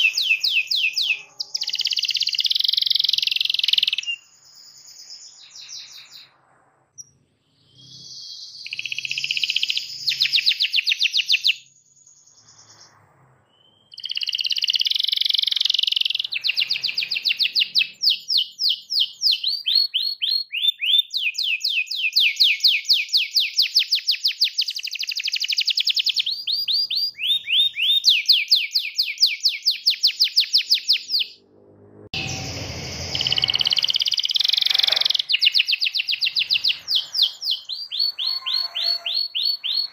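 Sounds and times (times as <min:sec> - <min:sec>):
canary singing trills: 0:00.0 - 0:06.4, 0:07.0 - 0:31.4, 0:32.2 - 0:39.9
low rumbling noise: 0:31.3 - 0:34.8.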